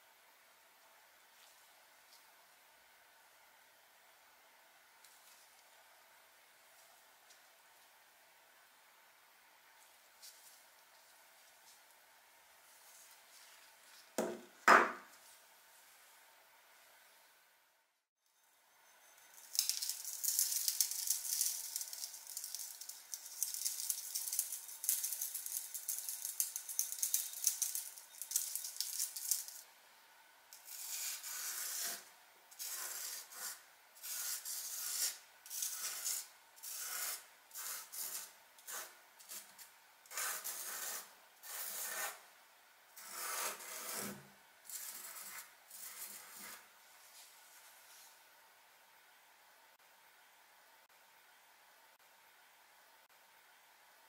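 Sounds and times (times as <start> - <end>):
powder scattering hiss: 19.4 - 29.6
fingertip scraping through powder: 30.6 - 32.0, 32.6 - 42.2, 43.0 - 46.7.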